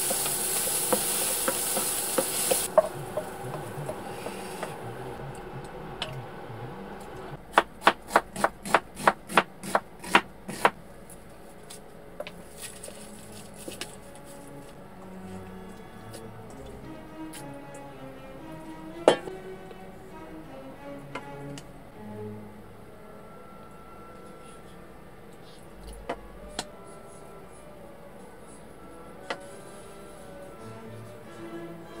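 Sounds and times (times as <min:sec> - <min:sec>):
mushrooms sizzling in frying pan: 0:00.0 - 0:05.2
wooden spoon stirring: 0:00.0 - 0:05.4, 0:12.2 - 0:17.4.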